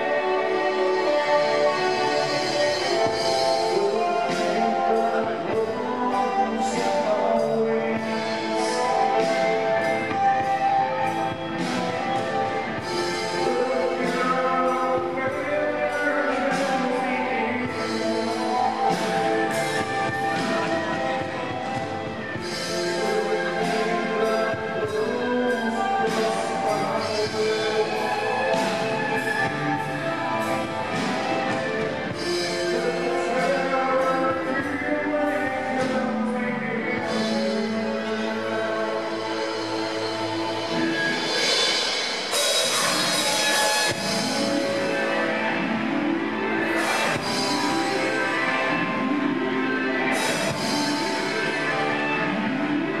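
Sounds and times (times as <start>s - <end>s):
bass guitar: 0.0s - 53.0s
drum kit: 0.0s - 53.0s
electric guitars: 0.0s - 53.0s
keyboard chords: 0.0s - 53.0s
drum kit with cymbal crashes: 39.2s - 45.5s.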